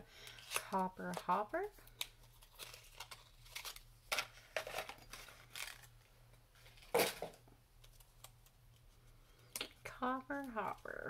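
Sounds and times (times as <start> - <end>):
packaging rustling: 0.2 - 6.0.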